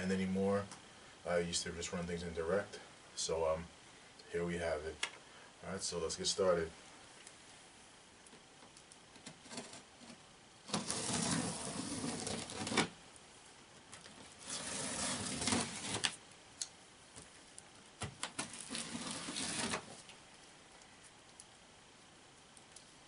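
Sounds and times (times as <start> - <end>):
packing tape tearing from cardboard: 9.3 - 13.0, 14.4 - 16.2, 18.2 - 20.1.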